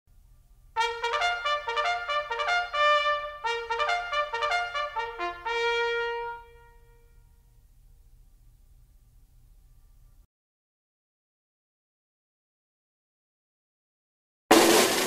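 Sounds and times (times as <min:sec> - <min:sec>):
trumpet fanfare: 0:00.8 - 0:07.4, 0:14.5 - 0:15.0.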